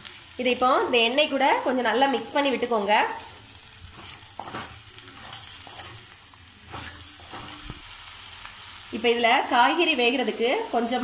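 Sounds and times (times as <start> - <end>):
vegetables sizzling in oil: 0.0 - 11.0
wooden spatula scraping pot: 3.8 - 7.8.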